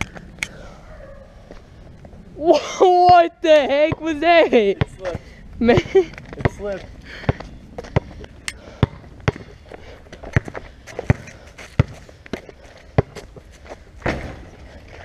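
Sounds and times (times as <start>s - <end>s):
basketball bouncing on asphalt: 3.1s - 14.4s.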